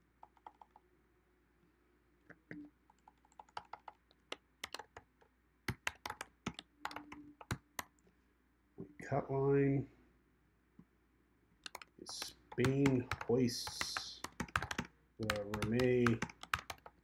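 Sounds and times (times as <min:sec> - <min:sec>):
keyboard key clicks: 0:05.7 - 0:07.9, 0:11.6 - 0:17.0.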